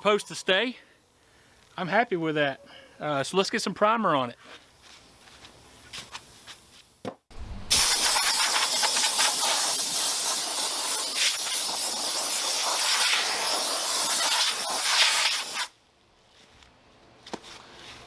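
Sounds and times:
compressed air hissing: 7.7s - 15.8s.

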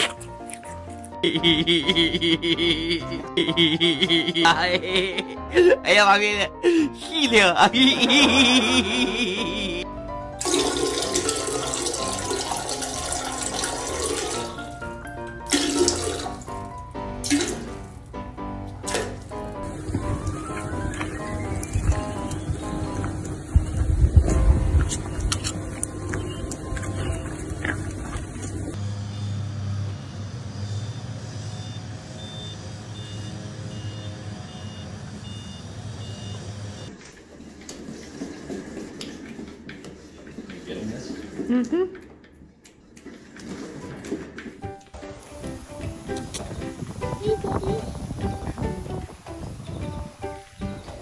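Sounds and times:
background music with sustained notes: 0.0s - 28.8s, 43.6s - 51.0s
running water from tap: 10.4s - 14.9s, 15.5s - 16.6s
vehicle engine running: 19.6s - 36.9s.

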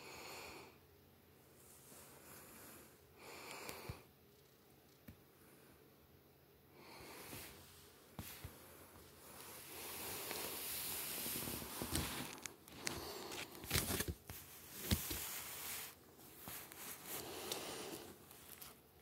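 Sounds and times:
rustling and scuffing: 13.4s - 18.8s.

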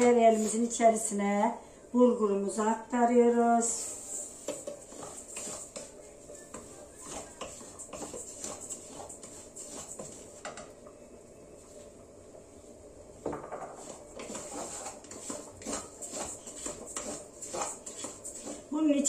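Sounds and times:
wooden spoon scraping a bowl: 3.6s - 10.5s, 13.6s - 18.8s
spoon stirring in a pot: 3.8s - 10.7s, 13.5s - 18.7s.

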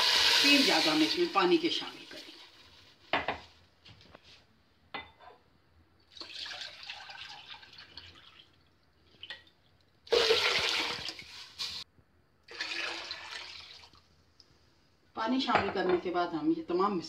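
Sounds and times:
water splashing into a metal pot: 6.0s - 11.8s, 12.5s - 14.1s.

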